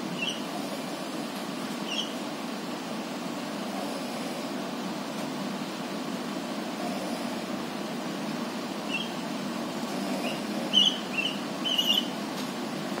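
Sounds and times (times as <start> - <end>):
birds chirping: 0.0 - 0.7, 1.8 - 2.3, 8.8 - 12.2
road traffic hum: 0.0 - 13.0.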